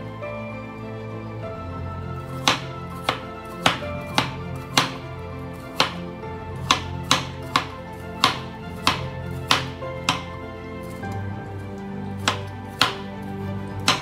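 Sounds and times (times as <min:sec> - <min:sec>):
background music: 0:00.0 - 0:14.0
knife chopping on wooden board: 0:02.4 - 0:05.0, 0:05.8 - 0:06.0, 0:06.6 - 0:10.3, 0:12.2 - 0:13.1.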